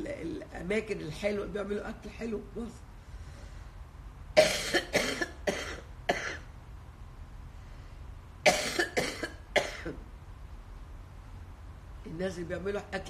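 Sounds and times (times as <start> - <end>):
woman coughing: 4.4 - 6.5, 8.4 - 10.0.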